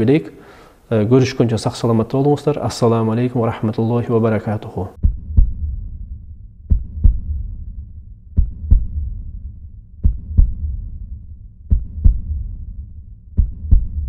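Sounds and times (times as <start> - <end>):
heartbeat thumps: 5.0 - 14.0
low rumble: 5.0 - 14.0.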